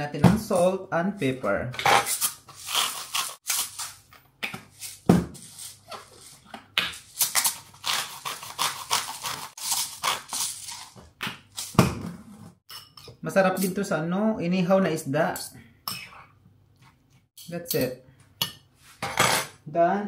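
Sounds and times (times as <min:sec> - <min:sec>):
salt and pepper grinders grinding: 0:07.0 - 0:11.0.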